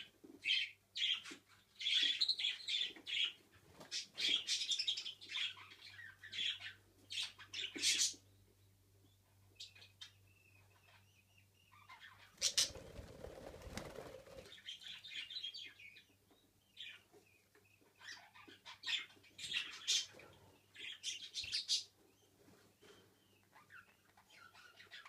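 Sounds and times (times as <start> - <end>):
budgerigars chirping: 9.6 - 12.9
wings flapping: 12.4 - 14.6.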